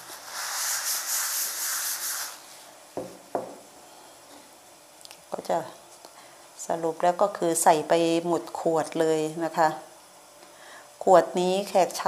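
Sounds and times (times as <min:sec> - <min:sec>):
tissue rubbing on glass jar: 0:00.0 - 0:02.6.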